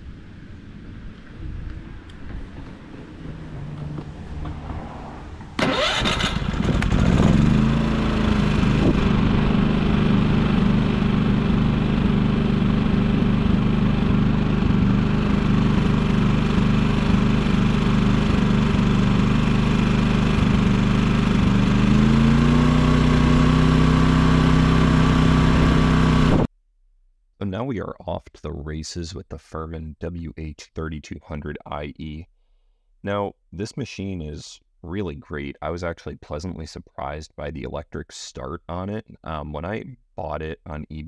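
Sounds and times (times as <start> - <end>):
generator engine running: 0.0 - 26.5.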